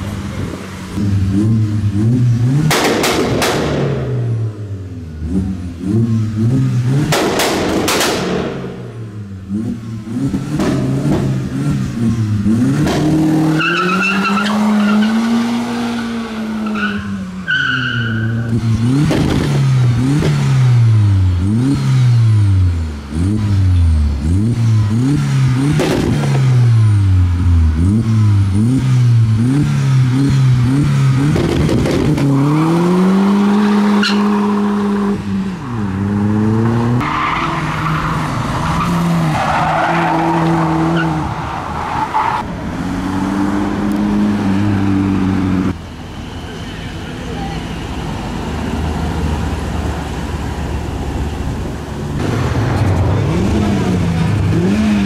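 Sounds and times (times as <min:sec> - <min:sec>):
car engines revving: 0:00.0 - 0:55.0
loud exhaust rushes: 0:00.0 - 0:55.0
tyre squeal: 0:16.6 - 0:18.5.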